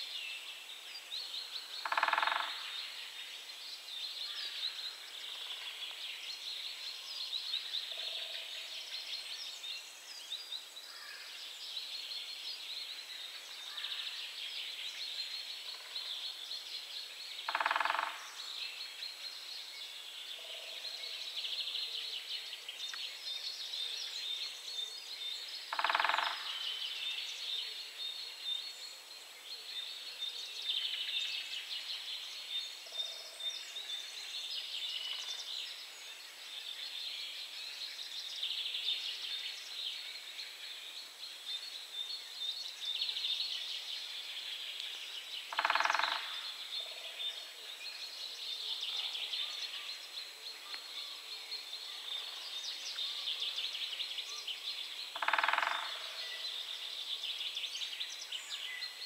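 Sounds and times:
woodpecker drumming: 1.8s - 2.5s, 17.5s - 18.2s, 25.7s - 26.4s, 45.5s - 46.3s, 55.2s - 56.0s.

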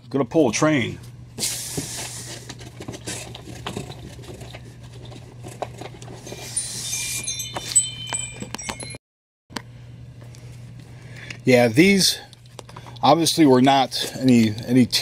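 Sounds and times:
steady low hum: 0.0s - 15.0s
light jingle of metallic tones: 6.5s - 9.0s.

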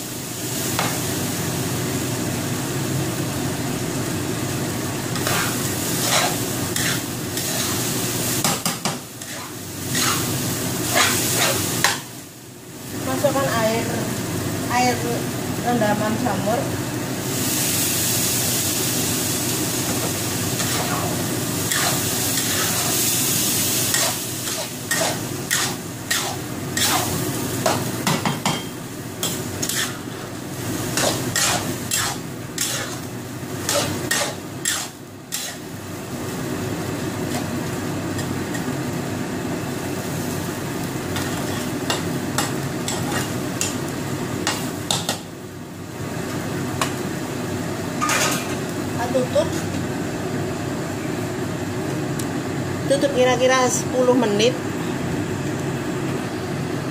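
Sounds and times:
rice sizzling in a wok: 0.0s - 56.9s
metal spatula scraping a wok: 5.2s - 7.8s, 9.2s - 10.3s, 10.9s - 12.0s, 20.6s - 23.1s, 23.8s - 27.2s, 29.2s - 30.2s, 30.9s - 35.6s.

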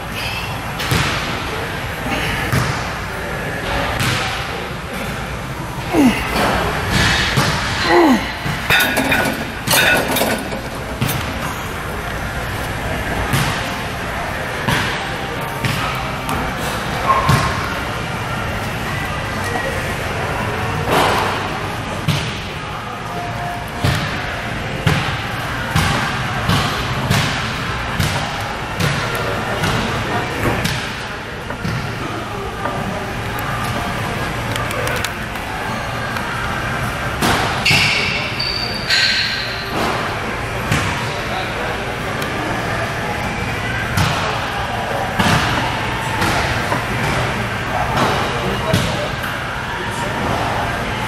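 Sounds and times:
exercise machine thudding metallically: 8.6s - 12.0s
weight stack clinking: 8.6s - 12.0s.

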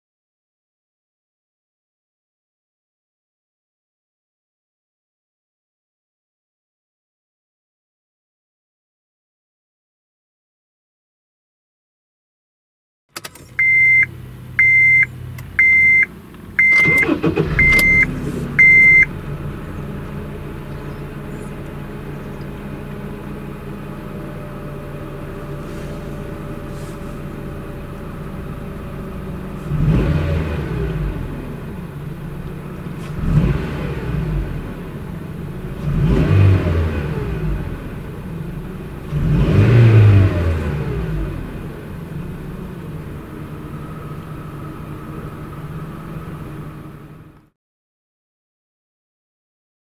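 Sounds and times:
car engine starting and revving: 13.1s - 47.5s
car warning chime beeping: 13.2s - 19.1s.

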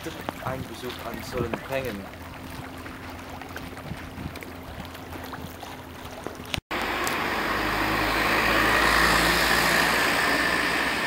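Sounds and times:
outdoor ambience: 0.0s - 11.0s
vehicle passing close by: 6.8s - 11.0s.

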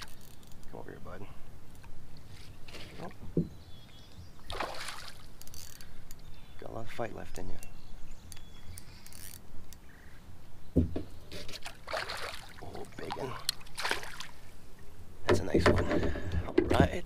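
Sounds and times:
fish splashing in water: 4.5s - 5.3s, 11.6s - 14.5s.

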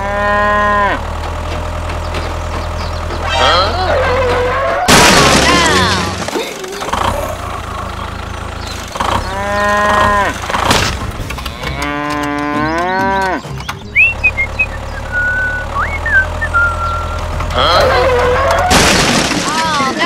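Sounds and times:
cow mooing: 0.0s - 1.1s, 9.2s - 10.5s, 11.4s - 13.5s, 17.5s - 18.7s.

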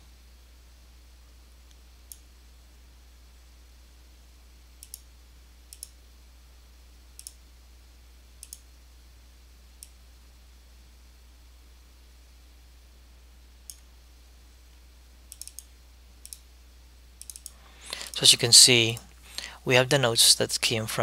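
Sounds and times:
faint low hum: 0.0s - 21.0s
computer mouse clicking: 4.8s - 5.1s, 5.7s - 6.0s, 7.2s - 7.4s, 8.4s - 8.6s, 15.3s - 16.4s, 17.2s - 18.2s.

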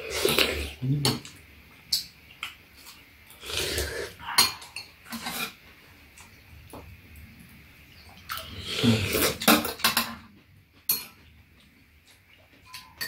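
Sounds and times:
utensils clinking on ceramic bowls: 12.6s - 13.0s.

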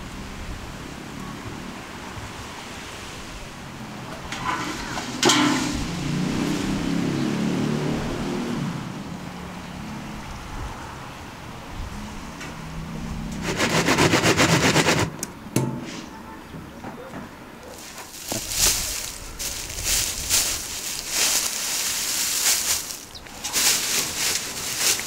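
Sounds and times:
metal bars rattling on buckets: 4.2s - 6.0s, 17.8s - 25.0s
straw rustling and crackling: 17.6s - 25.0s.

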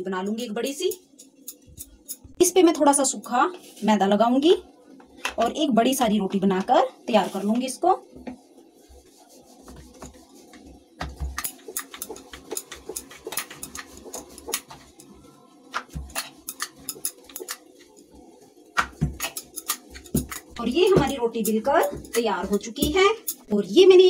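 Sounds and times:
rolling pin rolling dough: 6.0s - 24.0s.

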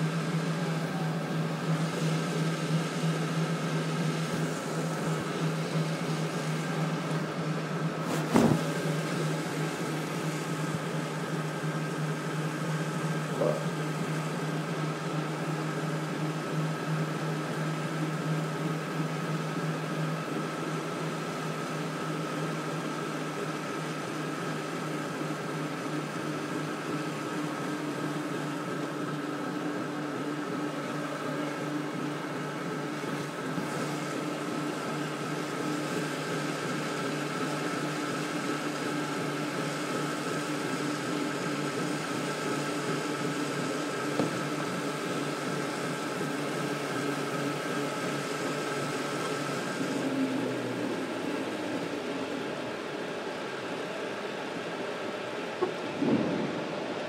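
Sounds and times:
mechanical hum with whine: 0.0s - 57.0s
sharp knock: 8.1s - 8.7s
even rushing noise: 55.7s - 57.0s.

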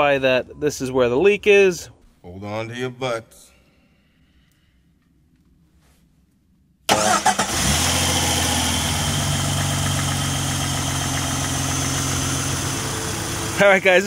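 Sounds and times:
car engine starting and idling: 6.9s - 14.0s.

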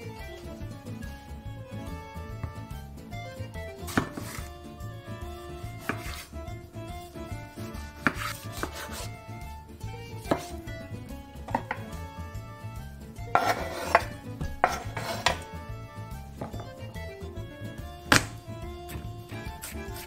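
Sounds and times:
knife knocking on wooden board: 2.4s - 2.7s, 3.9s - 4.5s, 7.8s - 9.0s, 10.2s - 10.6s, 11.4s - 12.1s, 13.4s - 15.6s, 16.3s - 17.1s, 18.0s - 19.1s
blade scraping across board: 3.8s - 4.5s, 5.3s - 6.4s, 7.5s - 9.2s, 10.3s - 10.6s, 11.5s - 11.9s, 13.3s - 15.6s, 18.1s - 20.0s
knife cutting tomato: 3.8s - 6.4s, 7.4s - 9.2s, 10.2s - 10.8s, 11.4s - 12.1s, 13.3s - 15.6s, 18.0s - 20.0s.

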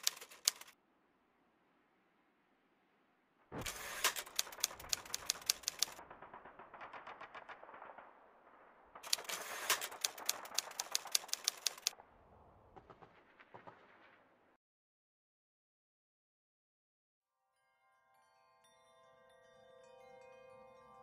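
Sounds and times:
typewriter keys clattering: 0.0s - 0.7s, 3.6s - 6.0s, 9.1s - 11.9s.

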